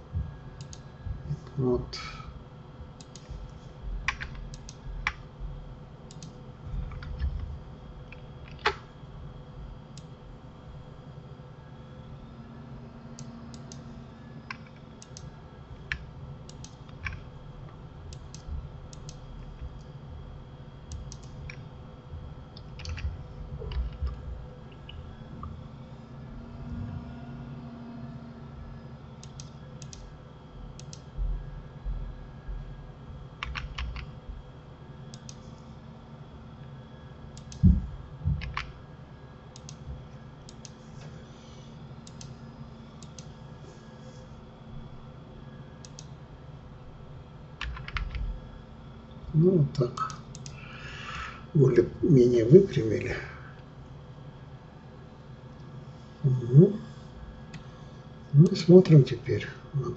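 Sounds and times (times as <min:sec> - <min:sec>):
faint steady hum note: 0:00.0 - 0:59.9
room and microphone hiss: 0:00.0 - 0:59.9
keyboard and mouse clicking: 0:00.6 - 0:00.8, 0:03.0 - 0:03.3, 0:04.0 - 0:05.2, 0:06.1 - 0:07.4, 0:08.1 - 0:08.8, 0:13.2 - 0:13.8, 0:14.5 - 0:17.3, 0:20.9 - 0:21.6, 0:22.6 - 0:25.0, 0:29.2 - 0:30.1, 0:30.8 - 0:31.0, 0:33.4 - 0:34.1, 0:37.4 - 0:37.7, 0:38.4 - 0:38.8, 0:39.6 - 0:39.8, 0:40.5 - 0:40.8, 0:42.0 - 0:42.3, 0:43.0 - 0:43.3, 0:47.6 - 0:48.2, 0:50.0 - 0:50.6.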